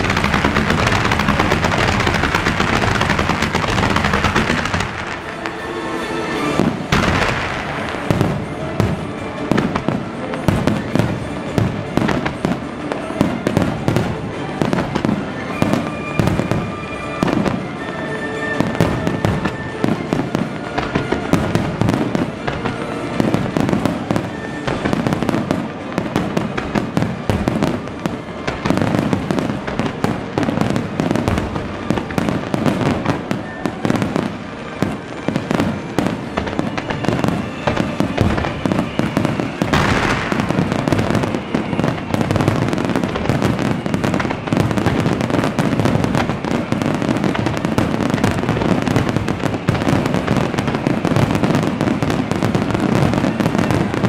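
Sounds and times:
fireworks barrage: 0:00.0 - 0:54.0.

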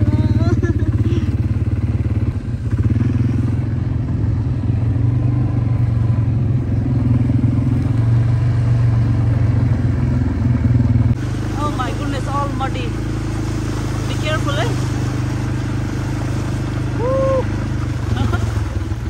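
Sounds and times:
quad bike engine running: 0:00.0 - 0:19.0.

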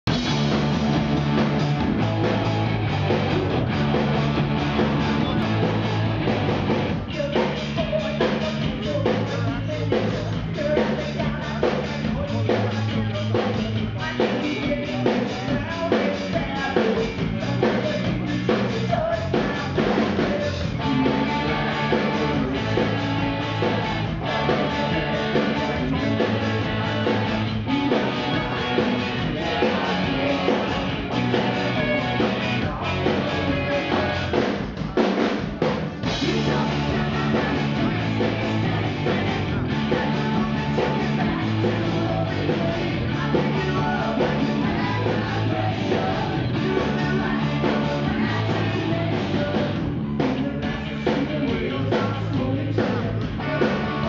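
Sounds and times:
rock band playing live: 0:00.0 - 0:54.0
woman singing lead vocal: 0:23.6 - 0:35.4, 0:36.1 - 0:54.0.

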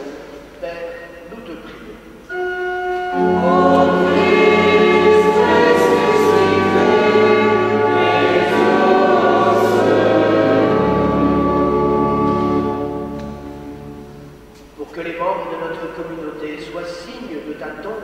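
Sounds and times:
organ: 0:02.2 - 0:14.5
cantor singing: 0:02.3 - 0:13.0
congregation singing: 0:02.3 - 0:14.4.

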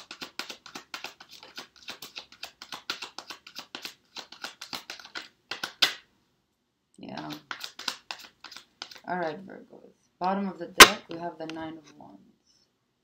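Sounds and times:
cards being shuffled: 0:00.0 - 0:06.1, 0:07.1 - 0:09.1.

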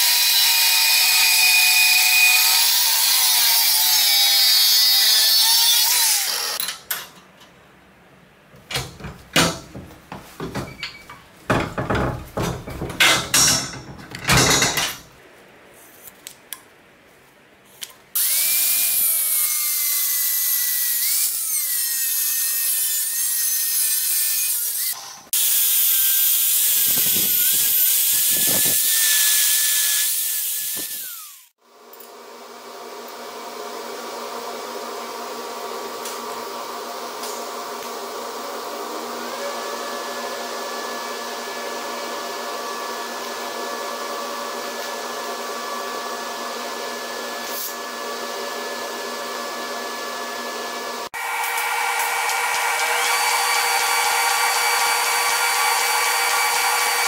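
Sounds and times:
angle grinder grinding metal: 0:00.0 - 0:06.7, 0:18.2 - 0:32.1, 0:51.1 - 0:57.0.

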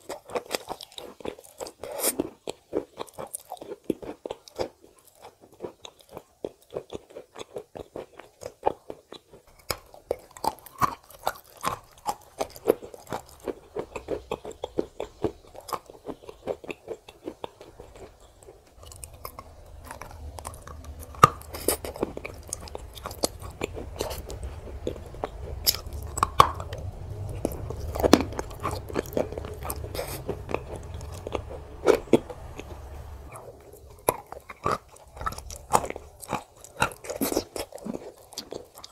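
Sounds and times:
chewing and crunching: 0:00.0 - 0:38.9
low rumble: 0:17.5 - 0:37.2.

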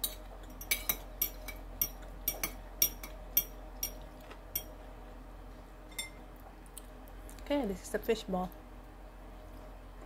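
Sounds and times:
metal spoon clinking on ceramic bowl: 0:00.0 - 0:04.0.

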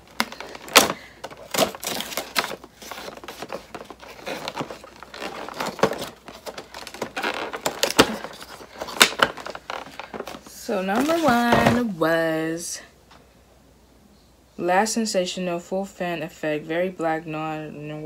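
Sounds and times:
cardboard crinkling and tearing: 0:00.0 - 0:11.8.

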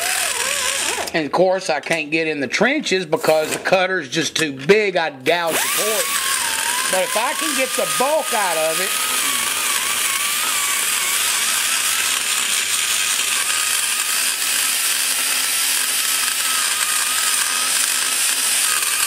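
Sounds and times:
die grinder cutting metal: 0:00.0 - 0:01.2, 0:05.3 - 0:19.0.

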